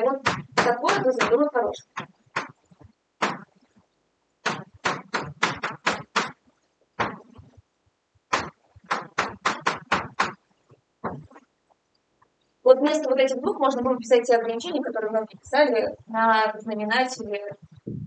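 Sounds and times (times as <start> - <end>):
chalk tapping on blackboard: 4.4 - 6.4, 8.3 - 10.4.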